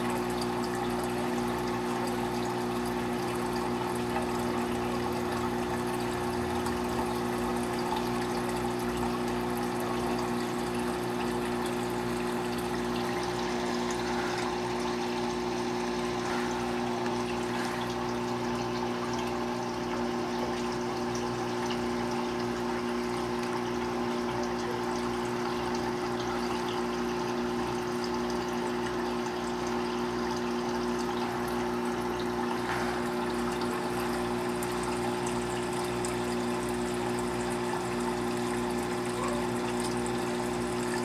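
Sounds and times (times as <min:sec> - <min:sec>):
aquarium pump humming: 0:00.0 - 0:41.0.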